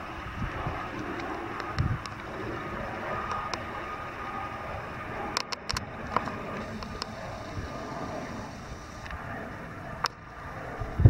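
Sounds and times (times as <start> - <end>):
distant jet aircraft rumble: 0.0 - 11.0
wind on microphone: 0.0 - 11.0
sharp clicks: 3.2 - 3.7, 5.3 - 7.2.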